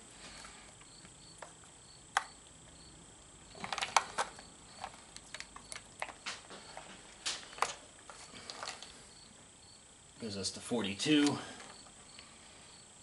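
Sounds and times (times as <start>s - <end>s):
multimeter probes clicking and tapping: 0.7s - 2.6s, 3.5s - 9.0s.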